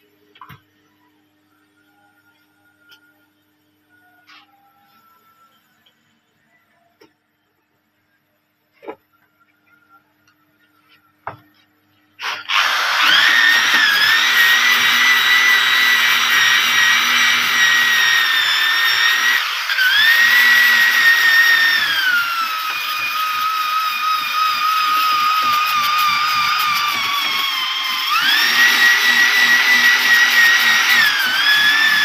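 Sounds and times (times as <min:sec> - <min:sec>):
electric drill wire brush on steel: 0:12.2 - 0:32.0.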